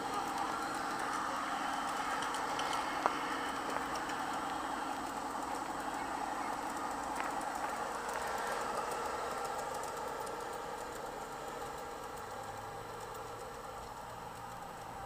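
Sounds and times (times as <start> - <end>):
model train motor hum: 0.0 - 15.0
wheels clicking over rails: 0.0 - 15.0.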